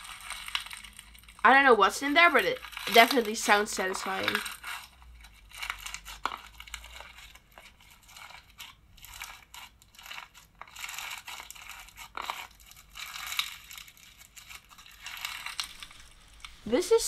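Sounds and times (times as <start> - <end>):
crunchy slime being squeezed: 0.0 - 16.6.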